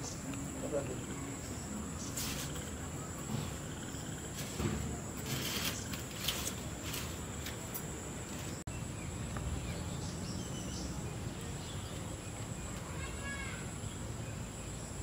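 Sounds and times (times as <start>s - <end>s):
crickets chirring: 0.0s - 15.0s
short rustles: 4.3s - 8.6s.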